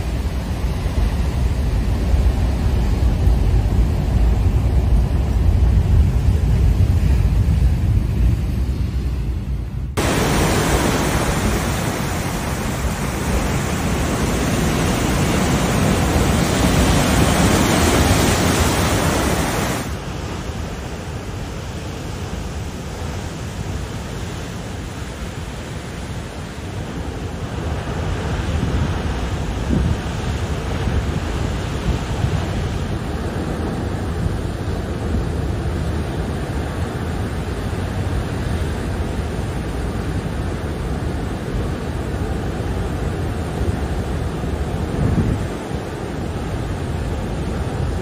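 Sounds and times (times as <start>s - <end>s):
surf washing into rocky cove: 0.0s - 8.9s, 9.9s - 48.0s
wind rumble on microphone: 0.0s - 48.0s
waves breaking on rocks: 10.0s - 21.4s.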